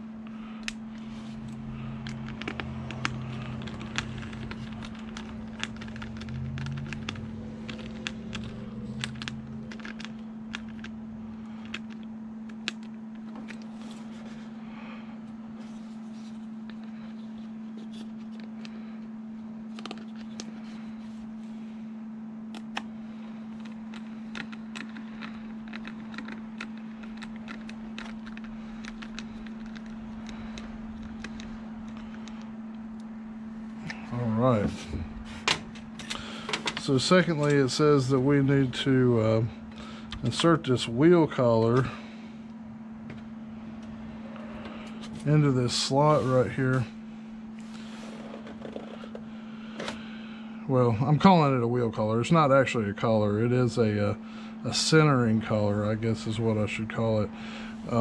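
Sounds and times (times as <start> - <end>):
steady low hum: 0.0 - 58.0
small clicks and scrapes of screws: 1.4 - 10.9.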